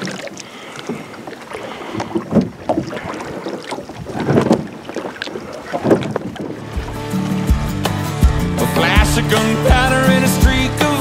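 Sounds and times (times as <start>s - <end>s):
water noise around boat: 0.0s - 11.0s
wind gusting on microphone: 2.2s - 4.8s, 5.7s - 6.7s
background music: 6.6s - 11.0s.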